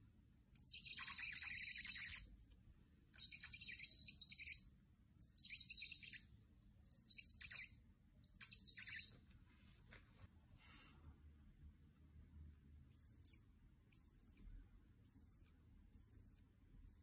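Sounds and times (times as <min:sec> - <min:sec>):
marker scratching on paper: 0:00.7 - 0:02.2, 0:12.9 - 0:17.0.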